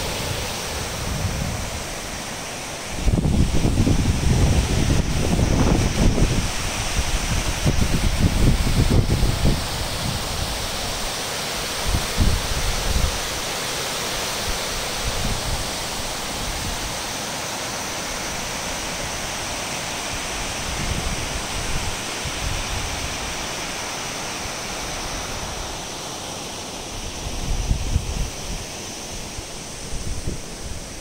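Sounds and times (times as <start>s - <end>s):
wind buffeting microphone: 0.0s - 2.3s, 2.9s - 10.6s, 27.2s - 28.7s
water rushing over spillway: 0.0s - 31.0s.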